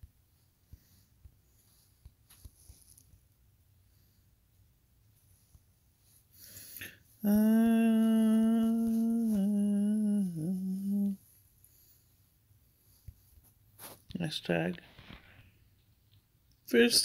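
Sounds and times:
person humming a long note: 7.2 - 11.2.

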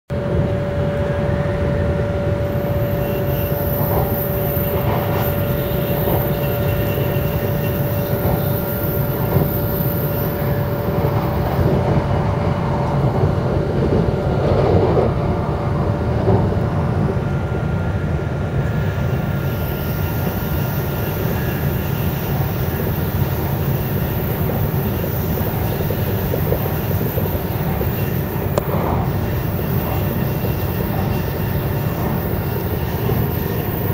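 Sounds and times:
train wheels rumbling on track: 0.1 - 33.9
thin steady tone: 2.0 - 11.8, 18.7 - 33.9.

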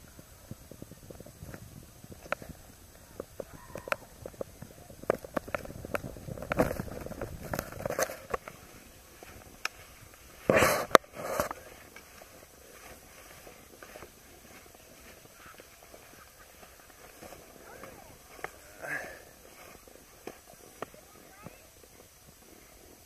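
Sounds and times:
skis scraping on snow: 0.0 - 23.0
ski clatter and handling knocks: 4.2 - 21.6.

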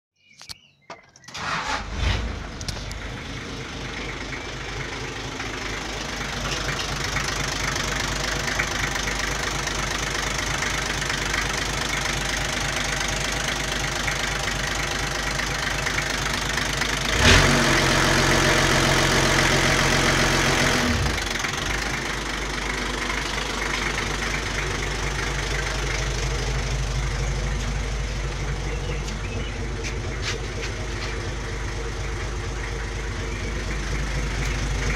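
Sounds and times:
diesel engine cranking and idling: 1.0 - 34.9
engine revving: 1.4 - 27.4.

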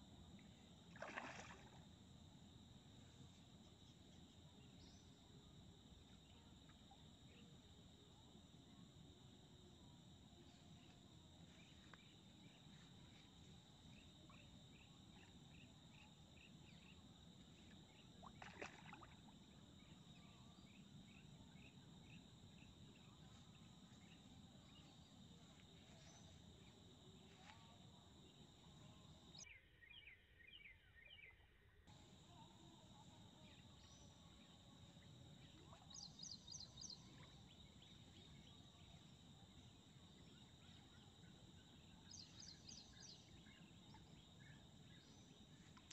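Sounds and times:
insects chirping in trills: 0.0 - 31.2, 31.9 - 45.9.

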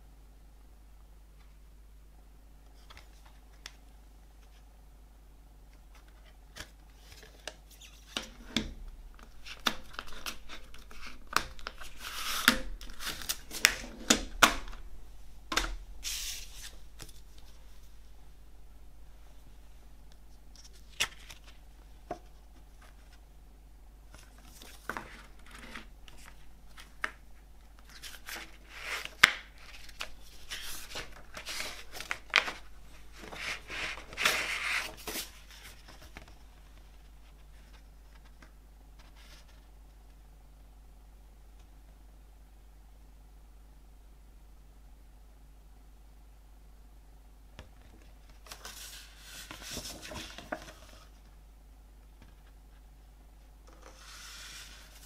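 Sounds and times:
paper booklet rustling: 16.0 - 18.0, 20.2 - 23.3, 24.1 - 39.7, 47.9 - 51.3, 53.7 - 55.0.

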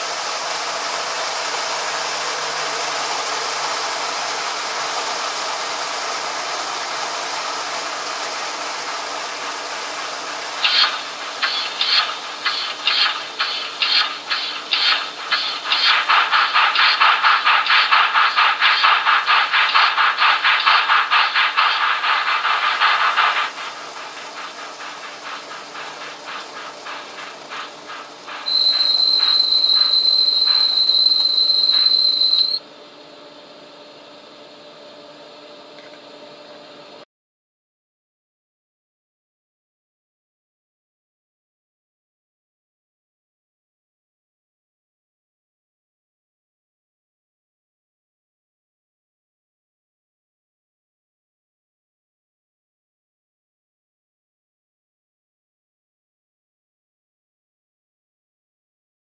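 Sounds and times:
steam hiss: 0.0 - 32.6
steam locomotive chuffing: 0.0 - 32.6
steam whistle: 28.4 - 32.6.

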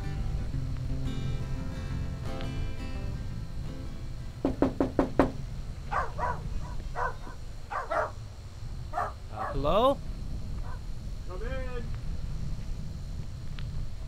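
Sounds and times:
knocking on a door: 4.4 - 5.4
dog barking: 5.9 - 8.2, 8.9 - 9.7, 10.6 - 10.8.

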